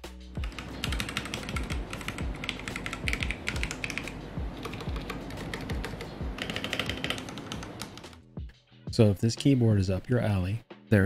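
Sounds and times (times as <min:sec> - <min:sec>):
mechanical keyboard typing: 0:00.4 - 0:08.2.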